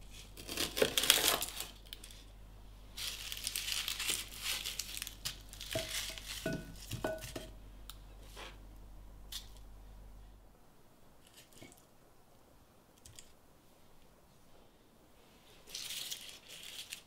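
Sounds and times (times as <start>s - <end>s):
papery skins rustling: 3.0s - 7.0s, 15.6s - 17.0s.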